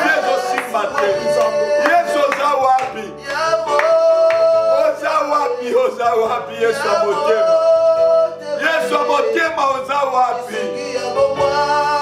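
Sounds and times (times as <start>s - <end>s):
man singing a prayer: 0.0s - 12.0s
sustained instrumental backing music: 0.0s - 12.0s.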